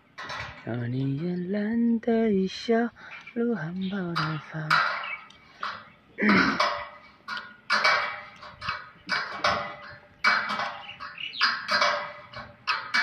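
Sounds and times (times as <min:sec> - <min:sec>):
wrench clinking on metal bolt: 0:04.0 - 0:05.9, 0:06.6 - 0:13.0.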